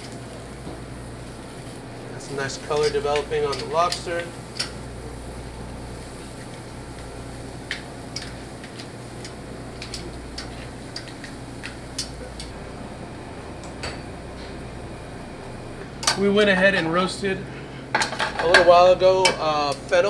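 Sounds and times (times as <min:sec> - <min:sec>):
metal tongs clinking on grill: 0:02.7 - 0:04.8.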